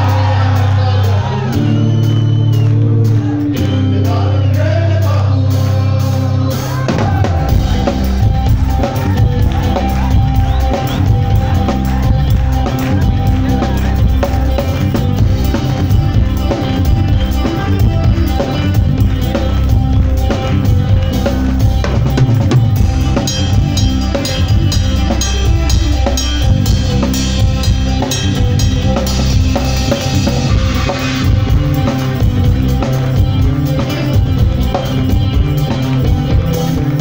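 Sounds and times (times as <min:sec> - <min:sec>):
drum kit beat: 0:00.0 - 0:04.3, 0:06.6 - 0:37.0
rock band playing: 0:00.0 - 0:37.0.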